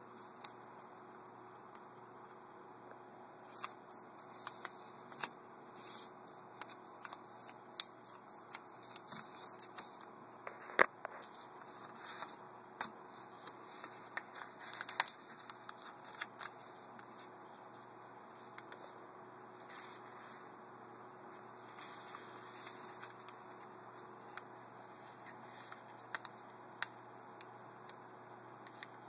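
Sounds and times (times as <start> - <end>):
paper rustling and crinkling: 3.5 - 17.3, 19.6 - 20.5, 21.4 - 26.3.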